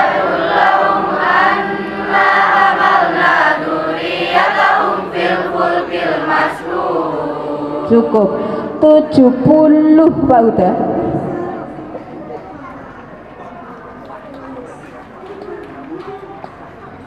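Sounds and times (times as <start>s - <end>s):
group of students singing: 0.0s - 8.5s.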